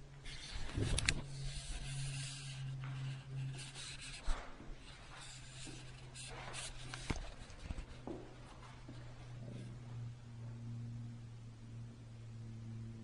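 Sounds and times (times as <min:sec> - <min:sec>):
faint low engine drone: 0:00.0 - 0:13.0
rustling handling noises: 0:00.3 - 0:09.6.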